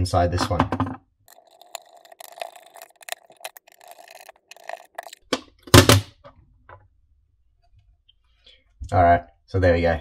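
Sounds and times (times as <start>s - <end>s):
screwdriver turning a screw: 1.3s - 5.2s.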